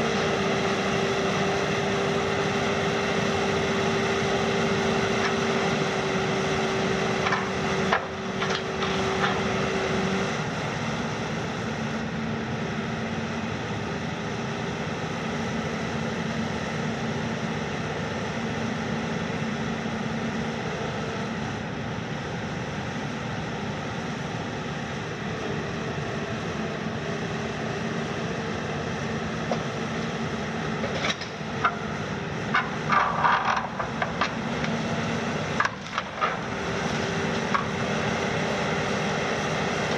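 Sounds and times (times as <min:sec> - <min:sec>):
excavator engine droning: 0:00.0 - 0:39.9.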